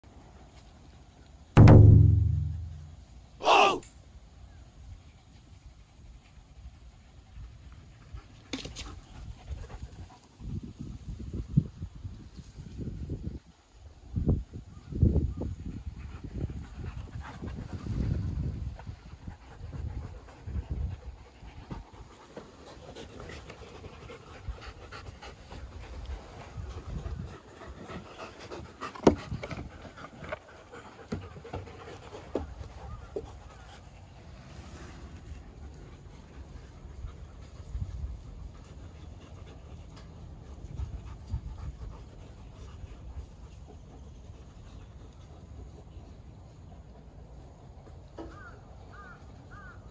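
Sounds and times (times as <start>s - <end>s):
low thumps: 1.6s - 3.1s
dog panting: 16.0s - 34.2s.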